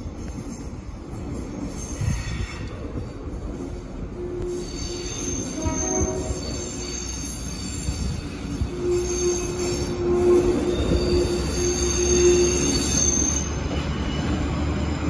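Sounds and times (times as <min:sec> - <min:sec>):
rail vehicle rumbling: 0:00.0 - 0:15.0
wheels squealing on rails: 0:00.0 - 0:15.0.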